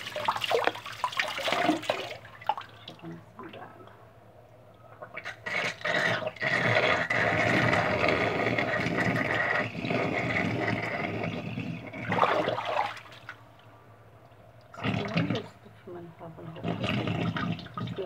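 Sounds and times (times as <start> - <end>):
water running and splashing: 0.0 - 3.7, 12.1 - 13.4.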